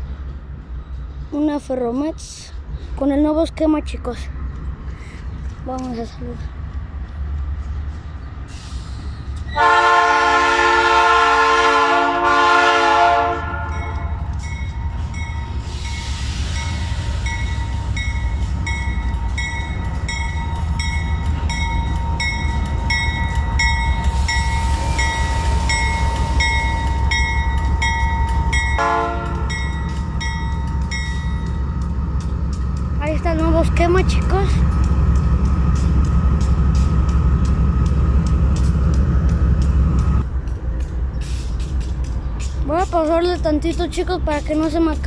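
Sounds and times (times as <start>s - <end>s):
locomotive engine rumbling past: 0.0s - 45.0s
locomotive air horn: 9.6s - 14.0s, 28.8s - 29.6s.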